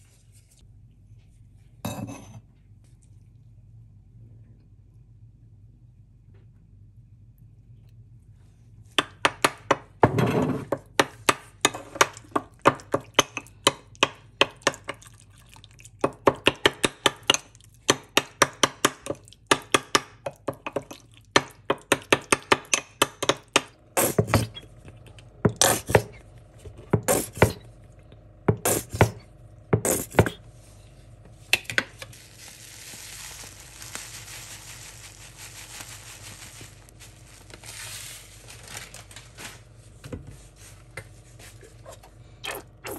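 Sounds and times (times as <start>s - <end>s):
steady hiss: 32.2s - 37.8s.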